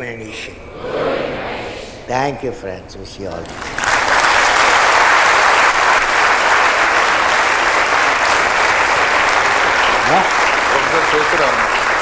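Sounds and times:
large audience applauding: 3.4 - 12.0.

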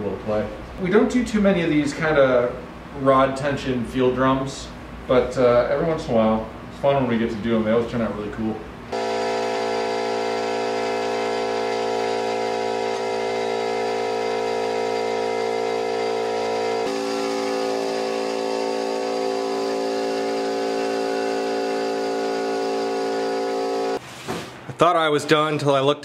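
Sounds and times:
power sander sanding wood: 8.9 - 24.0
shop vacuum running: 8.9 - 24.7.

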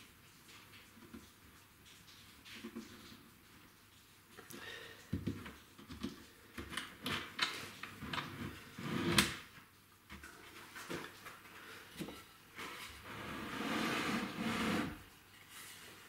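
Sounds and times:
rubbing on wood: 12.7 - 15.0
short scrape: 13.1 - 15.0.

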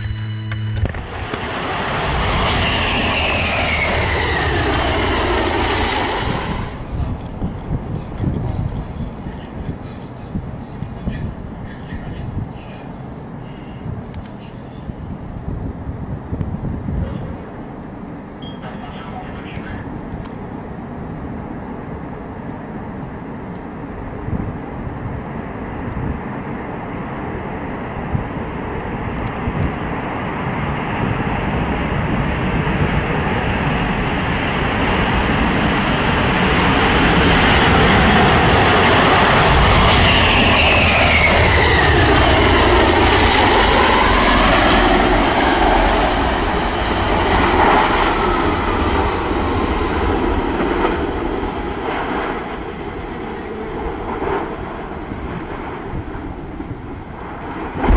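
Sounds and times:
jet whine sweeping: 0.0 - 7.1, 30.0 - 57.9
jet engines rumbling: 0.0 - 57.9.

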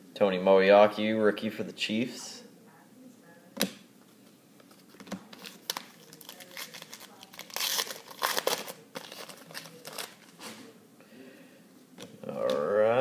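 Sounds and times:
foil wrapper tearing and crinkling: 5.4 - 10.3.

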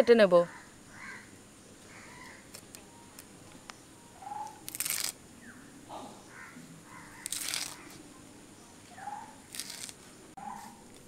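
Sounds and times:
faint bird calls: 0.4 - 4.7, 5.4 - 9.4
blade cutting banana flower: 4.4 - 5.2, 7.1 - 8.0, 9.5 - 10.1.

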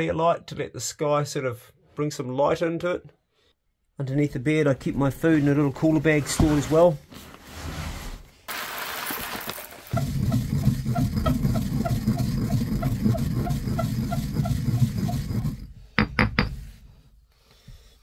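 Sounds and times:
rustle: 7.1 - 10.0
stone pestle grinding in mortar: 9.9 - 16.4
stone knocking on stone: 16.0 - 16.6.

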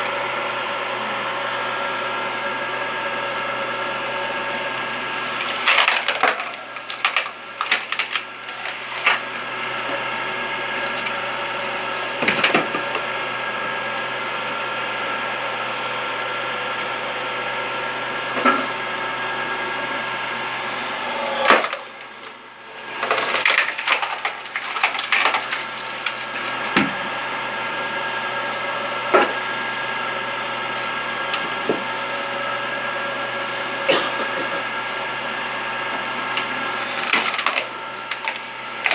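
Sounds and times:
wood cracking and splintering: 4.8 - 9.5, 12.2 - 12.8, 20.4 - 26.9, 36.3 - 38.9
electric motor humming: 19.4 - 26.8.

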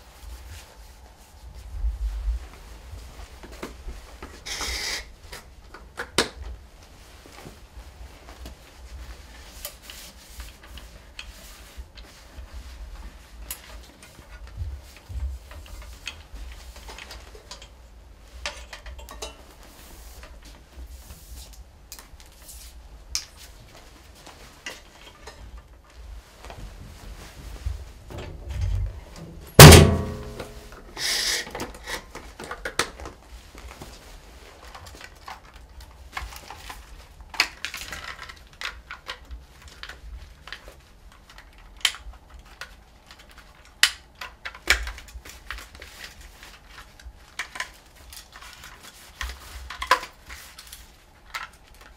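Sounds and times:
rustling of cleaning wipe: 0.0 - 51.9
loud thunk: 29.6 - 30.6.

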